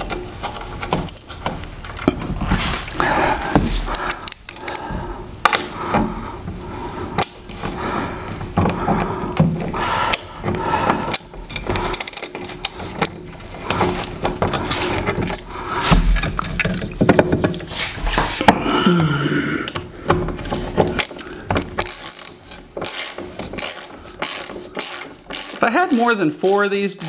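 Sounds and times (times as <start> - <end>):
ratchet wrench clicking: 21.8 - 25.6.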